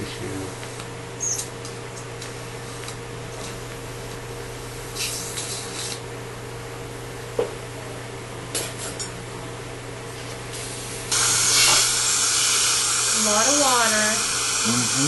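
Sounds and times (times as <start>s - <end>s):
equipment hum: 0.0s - 15.0s
short hissing bursts: 10.7s - 15.0s.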